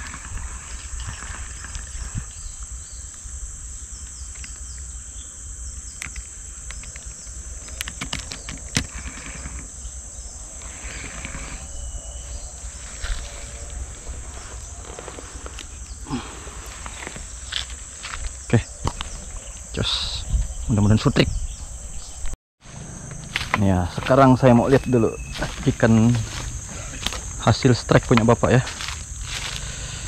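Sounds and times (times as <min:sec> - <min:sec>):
high drone of insects: 0:00.0 - 0:30.0.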